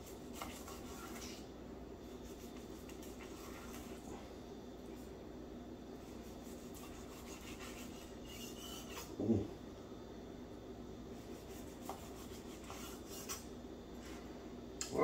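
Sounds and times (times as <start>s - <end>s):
knife sawing through steak: 6.3s - 9.1s.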